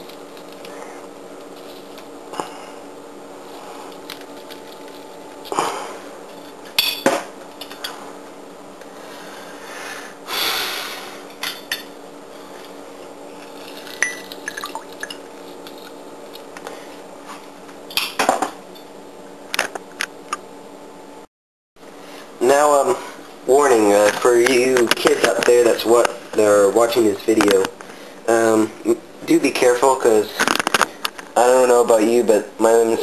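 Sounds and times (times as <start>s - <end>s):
juice squirting and dripping: 14.4s - 15.2s.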